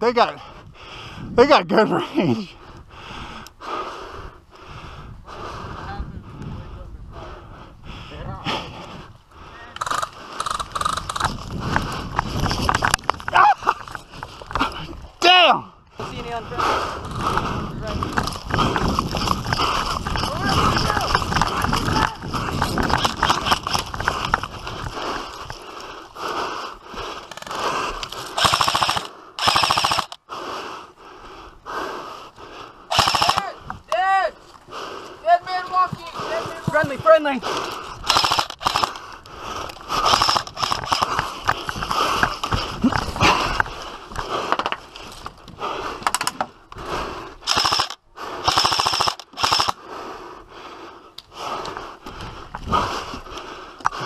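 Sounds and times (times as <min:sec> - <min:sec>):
airsoft rifles firing bursts: 0:28.3 - 0:30.2, 0:32.9 - 0:33.6, 0:38.0 - 0:39.0, 0:40.0 - 0:41.3, 0:47.4 - 0:49.8.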